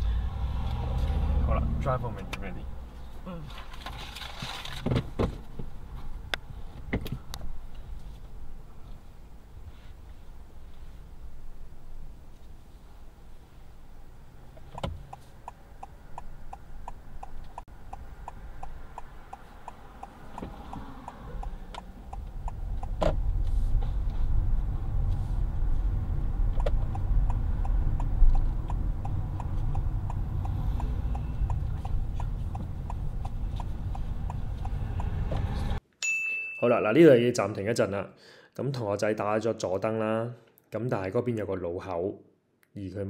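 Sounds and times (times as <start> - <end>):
engine and tyre rumble: 0.0 - 35.8
turn indicator ticking: 14.6 - 23.2, 26.4 - 35.8.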